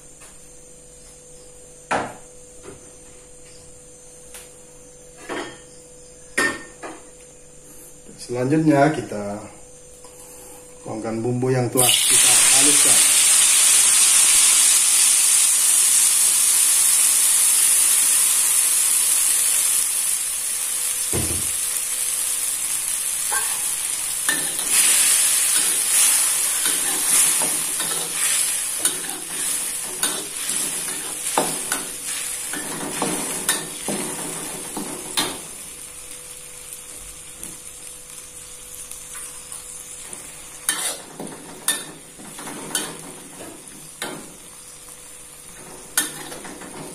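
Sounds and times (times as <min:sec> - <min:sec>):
spice paste sizzling in hot oil: 0:11.8 - 0:46.9.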